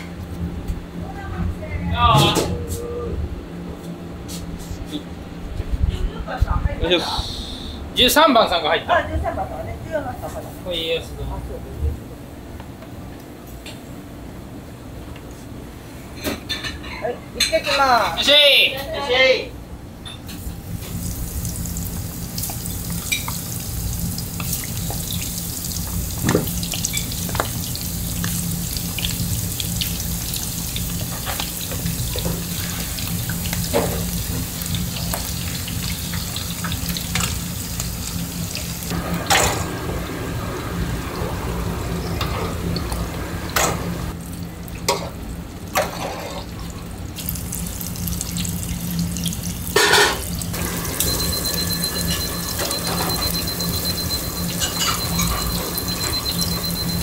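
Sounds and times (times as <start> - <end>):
oil bubbling and sizzling: 20.3 - 57.0.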